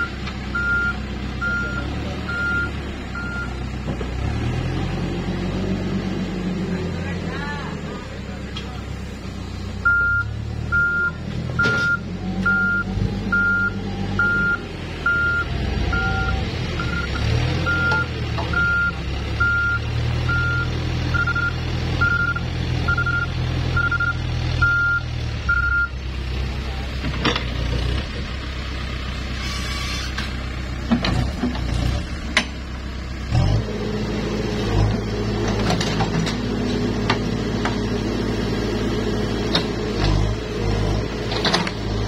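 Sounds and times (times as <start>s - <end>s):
diesel engine running: 0.0s - 42.0s
backup alarm beeping: 17.7s - 25.9s.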